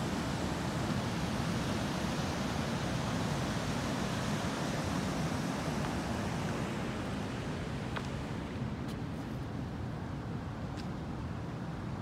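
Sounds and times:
river water rushing over weir: 0.0 - 8.8.

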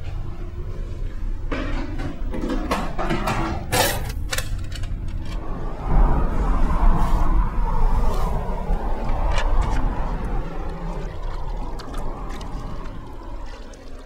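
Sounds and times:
loud rumble: 4.0 - 13.4.

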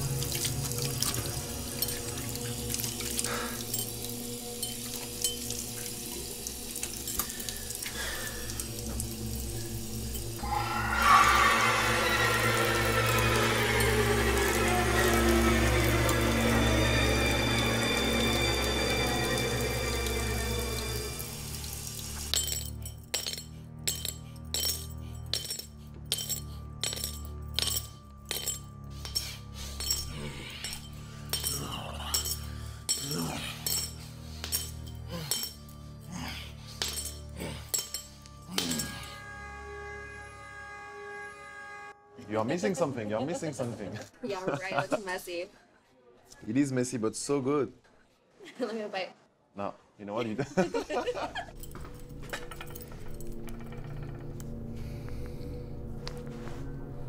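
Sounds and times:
water running from tap: 0.0 - 23.3
music: 0.0 - 48.9, 49.6 - 57.0
low drone: 5.8 - 22.4.

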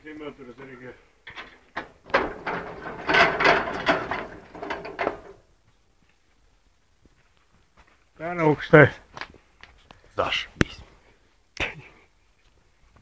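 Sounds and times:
sawmill metal clattering and ratcheting: 1.3 - 5.4.

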